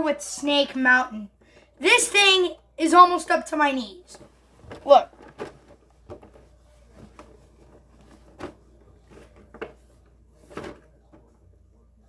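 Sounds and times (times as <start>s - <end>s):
toy box knocks and bumps: 4.1s - 11.2s.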